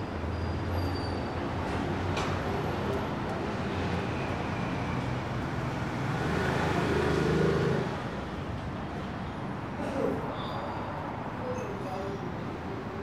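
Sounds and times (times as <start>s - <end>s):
city traffic rumble: 0.0s - 13.0s
vehicle engine passing by: 5.7s - 8.2s.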